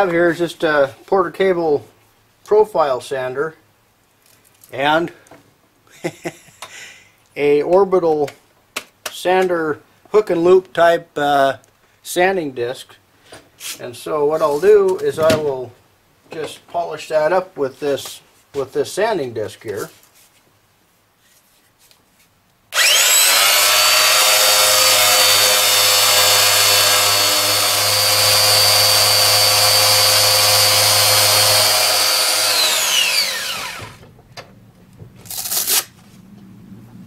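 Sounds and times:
electric sander whining: 22.8 - 34.0.

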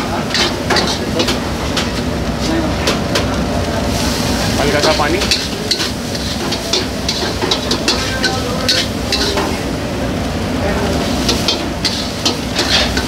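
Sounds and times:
frying sizzle: 0.0 - 13.0
metal spatula scraping wok: 0.3 - 2.6, 4.8 - 9.6, 11.0 - 13.0.

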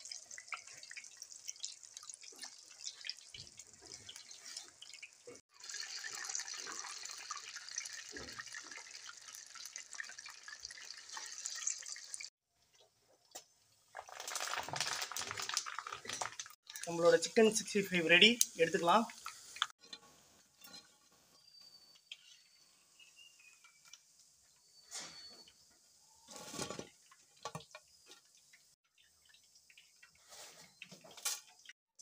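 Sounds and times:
food sizzling in hot oil: 0.0 - 12.3, 14.0 - 19.8.

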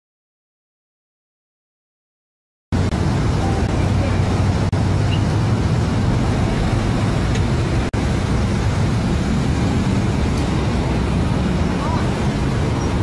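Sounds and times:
engine running: 2.8 - 13.0
road traffic rumble: 2.8 - 13.0.

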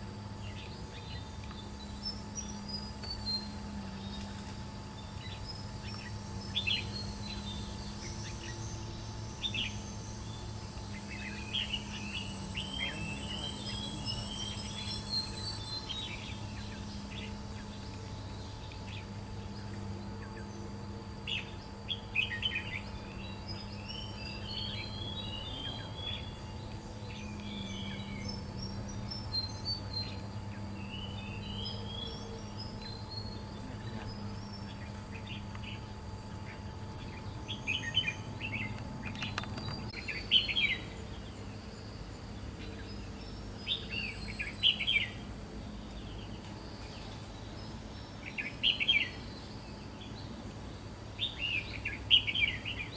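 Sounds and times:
birds singing chirped notes: 0.0 - 52.9
steady low hum: 0.0 - 52.9.

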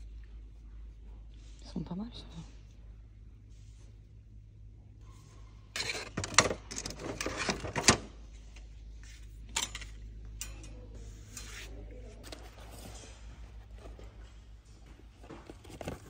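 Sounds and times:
plastic utensils clattering: 5.7 - 8.1.

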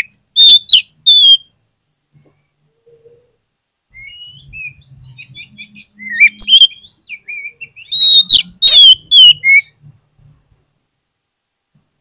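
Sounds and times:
bird singing whistled phrases: 0.0 - 1.5, 3.9 - 9.7
harsh bird chattering: 4.6 - 9.7.

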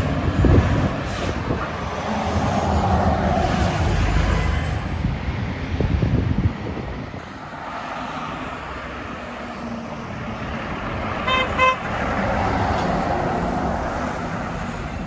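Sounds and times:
vehicle passing on road: 0.0 - 15.0
vehicle horn beeps: 11.3 - 11.9.

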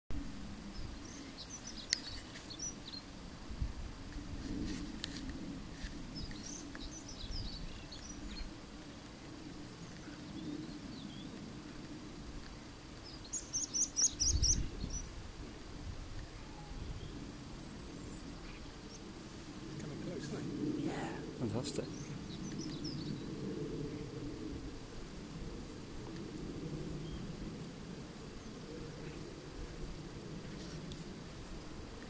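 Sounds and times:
small birds chirping: 0.7 - 3.2, 6.1 - 11.8, 12.4 - 15.2, 19.7 - 23.4.

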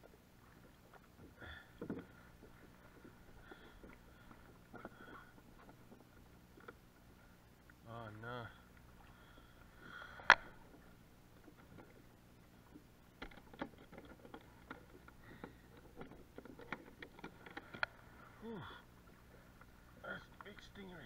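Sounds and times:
clicks and taps of fishing gear: 1.8 - 6.9, 10.2 - 10.7, 12.7 - 18.0
person grunting: 18.4 - 18.8.

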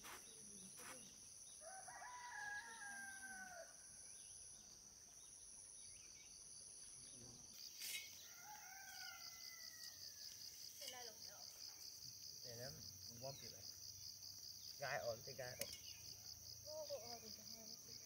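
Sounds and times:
faint rooster crowing: 1.6 - 4.0, 8.0 - 10.5.

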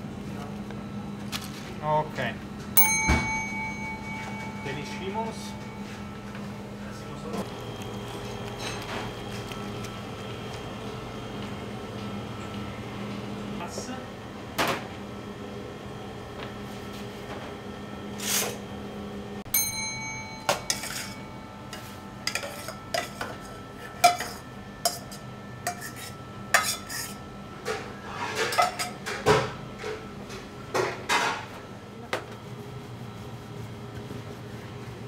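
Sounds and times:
metal bowl ringing: 2.8 - 7.4, 19.5 - 26.9
dishes and cookware clattering: 20.3 - 30.0.

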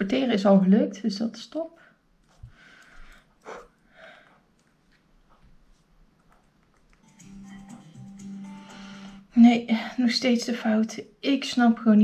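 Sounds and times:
faint clicks: 2.2 - 3.6
quiet music with held notes: 7.0 - 9.4.

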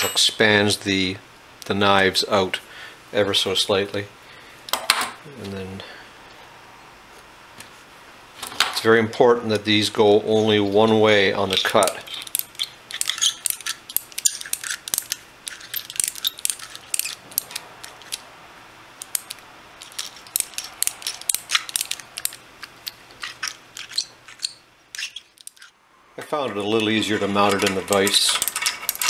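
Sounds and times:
hand reamer clicking on steel tube: 26.8 - 29.0.

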